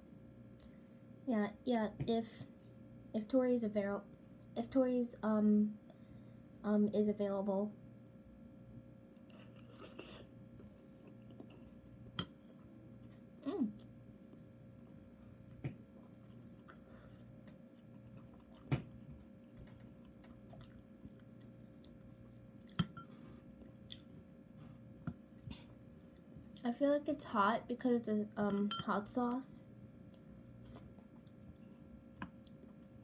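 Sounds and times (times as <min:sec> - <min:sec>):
person chewing wetly: 0:15.4 - 0:24.3, 0:30.1 - 0:33.0.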